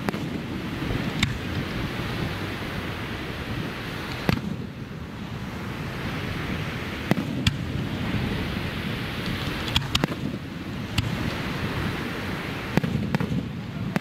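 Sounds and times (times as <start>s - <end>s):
firework shells banging: 9.2s - 11.4s.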